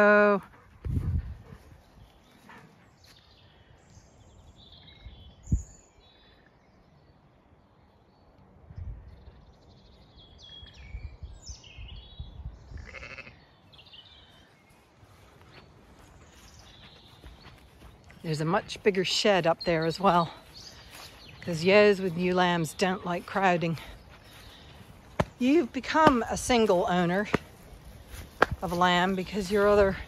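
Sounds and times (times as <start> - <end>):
sheep and lambs bleating: 12.7 - 13.6.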